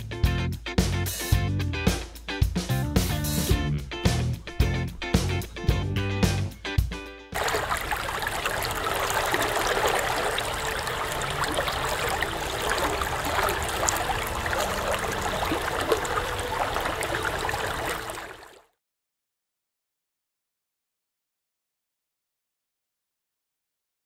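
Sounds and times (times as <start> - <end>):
running water splashing: 7.4 - 18.6.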